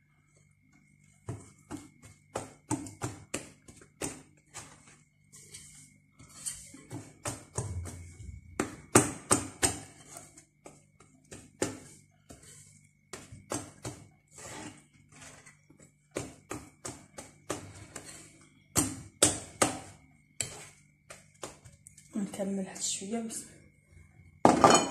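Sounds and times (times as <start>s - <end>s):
whisk scraping a glass bowl: 3.7s - 8.2s, 9.5s - 10.8s, 11.7s - 15.9s, 17.4s - 18.5s, 19.4s - 20.8s.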